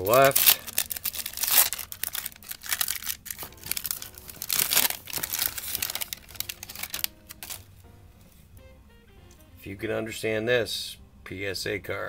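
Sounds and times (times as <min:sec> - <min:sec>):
foil wrapper crinkling and tearing: 0:00.0 - 0:07.7.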